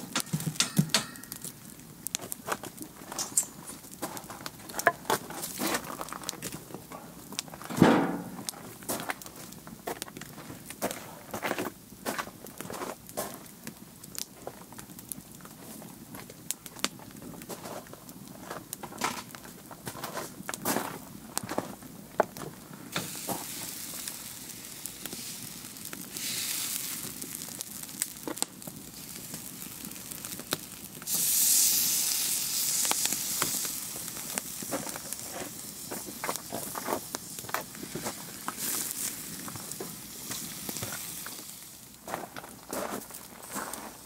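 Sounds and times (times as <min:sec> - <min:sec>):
meat sizzling on a grill: 0:00.0 - 0:06.6, 0:22.8 - 0:44.0
wood fire crackling: 0:00.0 - 0:44.0.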